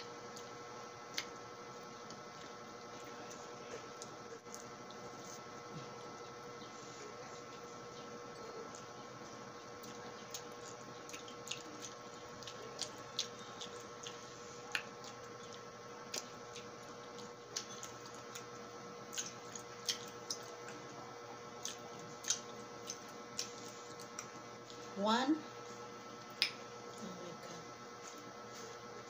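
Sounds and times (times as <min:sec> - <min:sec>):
faint steady hum: 0:00.0 - 0:29.0
sucking and squishy chewing: 0:00.3 - 0:06.2, 0:07.0 - 0:24.9
lip smacks: 0:11.1 - 0:18.5, 0:26.3 - 0:26.6.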